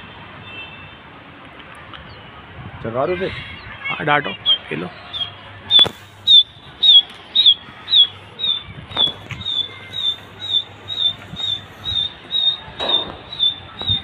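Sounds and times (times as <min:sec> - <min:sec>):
small animal high-pitched chirp: 0:05.2 - 0:14.0.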